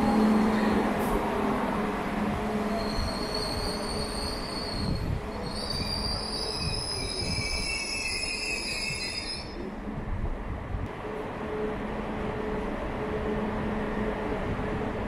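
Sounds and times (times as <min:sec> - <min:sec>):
train rumbling: 0:00.0 - 0:15.0
steel wheel squeal: 0:02.7 - 0:09.6.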